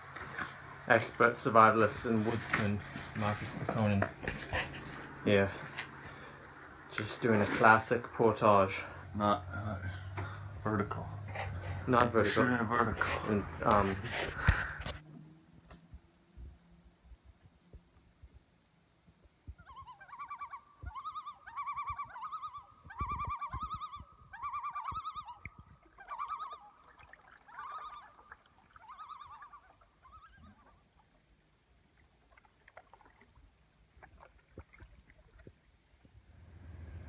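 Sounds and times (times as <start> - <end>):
bird calling quavering notes: 4.1 - 15.5, 19.5 - 31.1.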